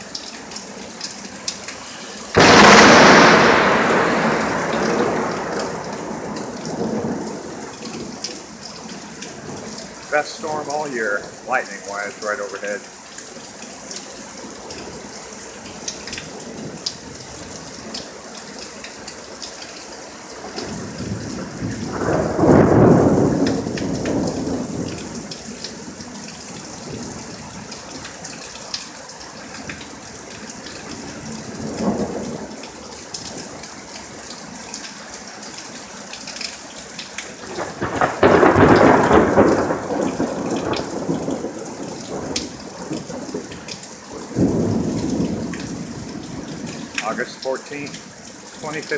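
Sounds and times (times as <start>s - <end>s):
steady rain: 0.0s - 48.9s
rolling thunder: 2.4s - 8.3s, 20.4s - 28.1s, 30.8s - 32.6s, 37.4s - 43.6s, 44.2s - 46.9s.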